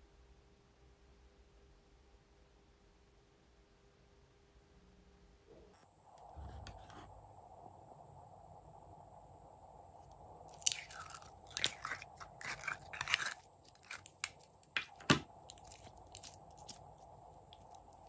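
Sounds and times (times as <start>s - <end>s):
sticky slime crackling and clicking: 10.5s - 18.0s.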